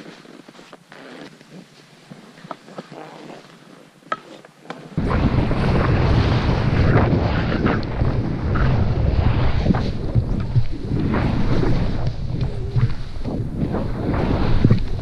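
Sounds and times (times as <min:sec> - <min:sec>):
wind buffeting microphone: 0:05.0 - 0:15.0
skis hissing through snow: 0:05.1 - 0:15.0.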